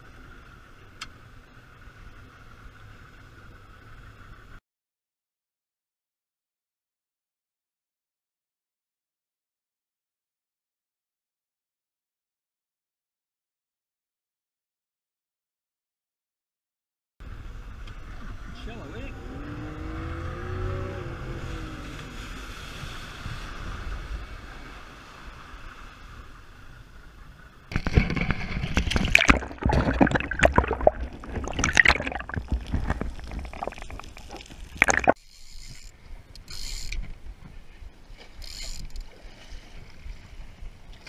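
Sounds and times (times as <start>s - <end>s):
wind: 0.0s - 4.6s, 17.2s - 41.0s
water lapping: 21.4s - 41.0s
underwater rushing crackling: 27.6s - 35.2s
water washing: 27.7s - 35.2s.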